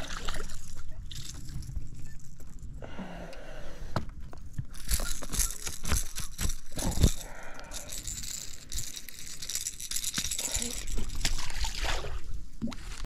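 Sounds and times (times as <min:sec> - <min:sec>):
rustling and crinkling: 0:04.0 - 0:13.0.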